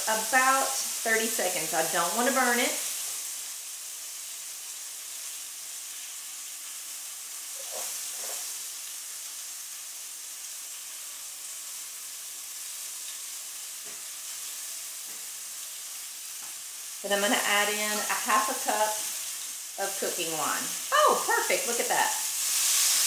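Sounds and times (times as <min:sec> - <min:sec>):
food sizzling in hot oil: 0:00.0 - 0:23.0
spatula stirring in skillet: 0:07.4 - 0:08.8.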